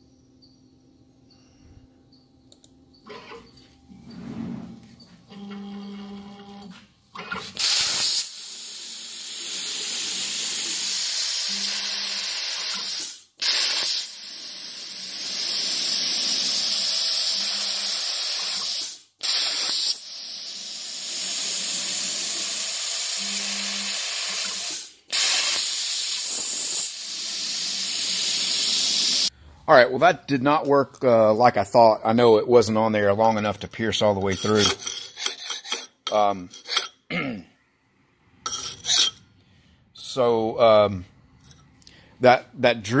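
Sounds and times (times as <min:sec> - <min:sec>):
plasma torch hissing: 0:07.6 - 0:23.3, 0:23.9 - 0:29.3
sharp burst of torch arc: 0:12.9 - 0:14.7, 0:24.7 - 0:27.1.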